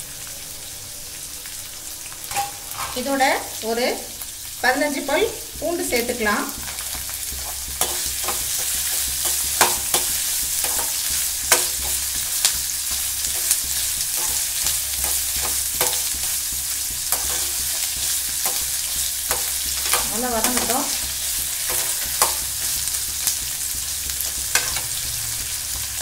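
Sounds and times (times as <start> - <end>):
onions sizzling in hot oil: 0.0 - 26.0
metal ladle scraping a pan: 2.3 - 3.2, 6.7 - 26.0.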